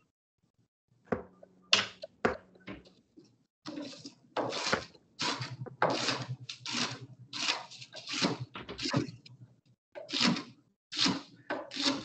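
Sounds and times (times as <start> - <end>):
knife slicing onion on board: 3.7 - 9.0, 10.0 - 12.0.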